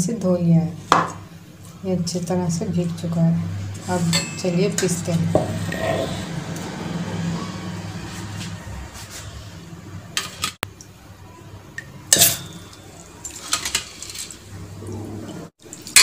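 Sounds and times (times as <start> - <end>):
utensils clinking and scraping: 3.8 - 6.6, 12.1 - 14.5.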